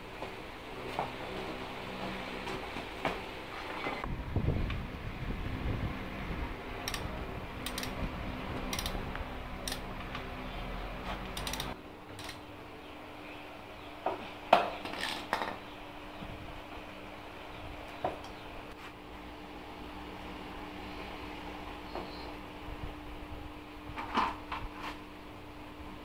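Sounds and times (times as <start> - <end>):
socket wrench clicking: 6.8 - 8.0, 8.6 - 9.0, 9.6 - 9.8, 11.4 - 12.4.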